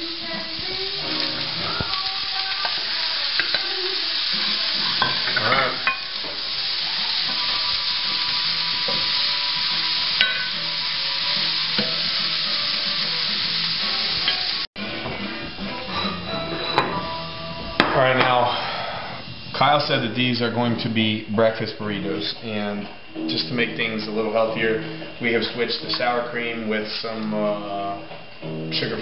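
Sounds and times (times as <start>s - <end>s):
food sizzling in frying pan: 0.0s - 14.7s.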